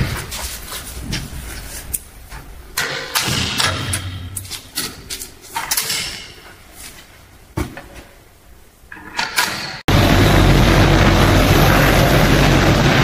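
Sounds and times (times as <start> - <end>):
low hum: 9.9 - 13.0.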